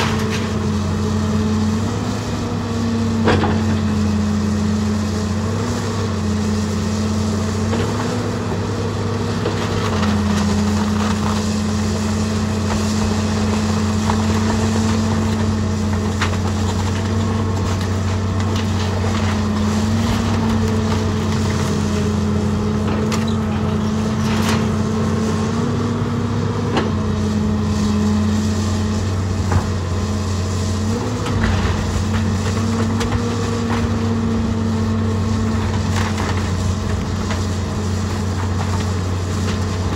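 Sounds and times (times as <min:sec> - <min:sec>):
excavator diesel engine running: 0:00.0 - 0:39.9
wood and metal debris cracking: 0:31.2 - 0:34.4, 0:35.3 - 0:39.9.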